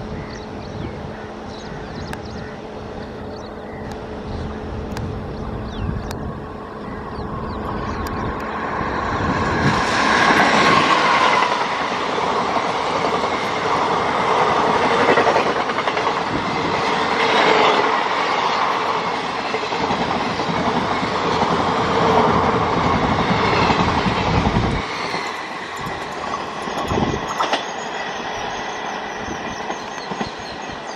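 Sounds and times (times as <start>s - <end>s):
deep train rumble: 0.0s - 30.9s
train wheels rushing on rails: 0.0s - 30.9s
clickety-clack over rail joints: 9.6s - 27.8s, 29.1s - 30.9s.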